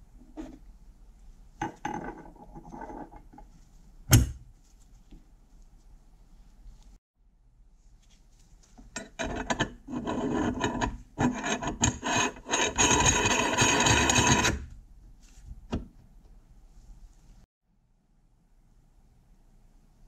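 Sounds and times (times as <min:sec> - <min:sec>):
metal-on-metal scraping: 0:08.9 - 0:14.7.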